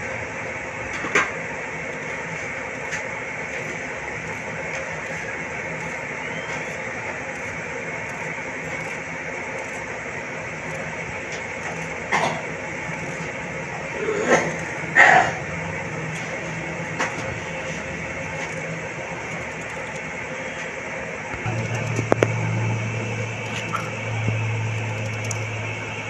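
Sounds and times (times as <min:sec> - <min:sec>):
steady droning noise: 0:00.0 - 0:26.0
sharp clicks: 0:21.3 - 0:25.6.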